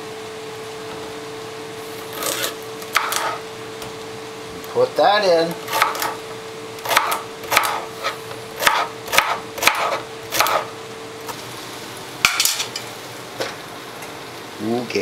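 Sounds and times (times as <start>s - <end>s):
knife chopping celery on a board: 2.1s - 3.4s, 5.6s - 6.2s, 6.8s - 10.7s.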